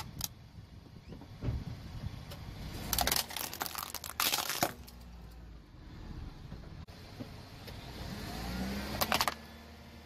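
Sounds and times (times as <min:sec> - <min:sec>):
plastic toy cracking under tyre: 0:02.8 - 0:05.0, 0:09.0 - 0:09.4.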